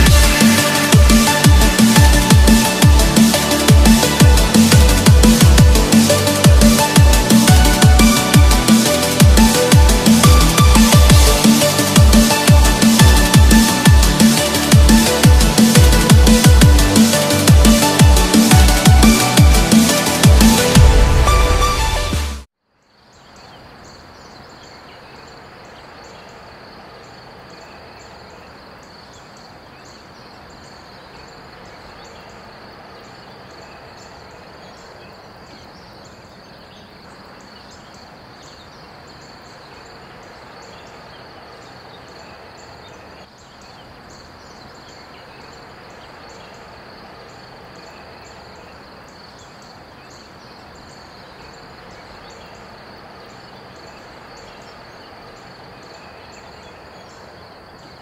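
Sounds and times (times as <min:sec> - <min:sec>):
insects chirping: 0:22.7 - 0:58.0.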